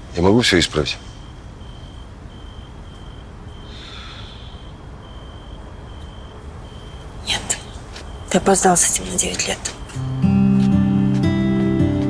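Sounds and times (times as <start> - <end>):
cricket chirping: 0.2 - 10.1
breathy exhale: 3.6 - 4.9.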